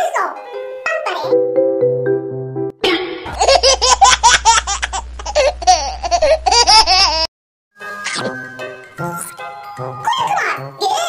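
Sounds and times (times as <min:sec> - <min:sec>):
high-pitched cackling laughter: 0:03.3 - 0:07.3
low steady hum: 0:03.3 - 0:07.3.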